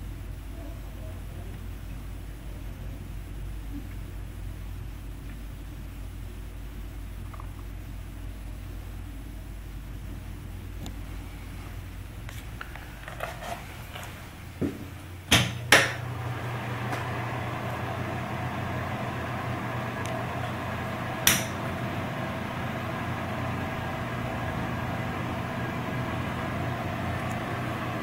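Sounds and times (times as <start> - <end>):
exhaust fan humming: 0.0 - 28.0
wall switch clicking: 15.3 - 16.0, 21.2 - 21.6.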